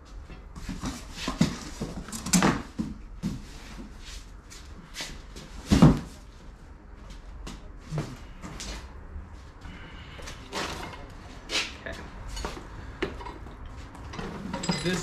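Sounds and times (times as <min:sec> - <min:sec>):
boxes knocking and thumping: 0:00.6 - 0:03.8, 0:05.5 - 0:06.2
cardboard boxes rustling: 0:00.6 - 0:04.2.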